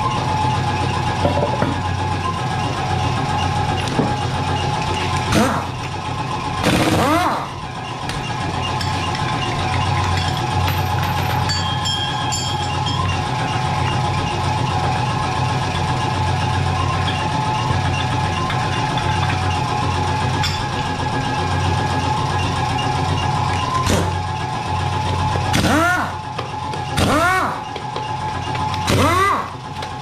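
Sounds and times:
steady motor drone: 0:00.0 - 0:30.0
light metal clinks: 0:10.2 - 0:13.1.

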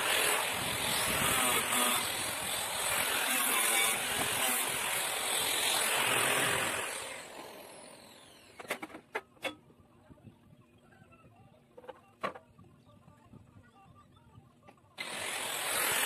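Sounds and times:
angle grinder cutting sheet metal: 0:00.0 - 0:09.6, 0:15.0 - 0:16.0.

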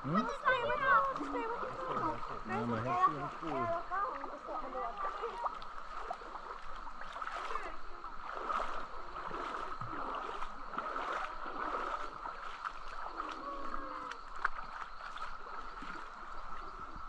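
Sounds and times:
river water rushing: 0:00.0 - 0:17.0.

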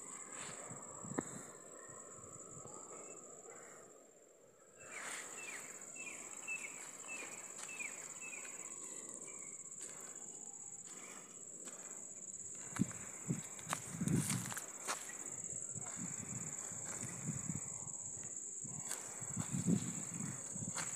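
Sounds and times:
high-pitched insect drone: 0:04.8 - 0:20.9.

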